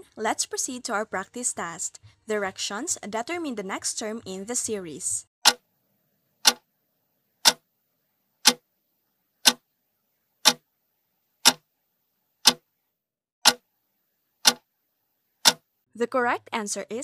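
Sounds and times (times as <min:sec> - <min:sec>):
clock ticks: 0:05.4 - 0:05.6, 0:06.4 - 0:06.6, 0:07.4 - 0:07.6, 0:08.4 - 0:08.6, 0:09.4 - 0:09.6, 0:10.4 - 0:10.6, 0:11.4 - 0:11.6, 0:12.4 - 0:12.6, 0:13.4 - 0:13.6, 0:14.4 - 0:14.6, 0:15.4 - 0:15.7.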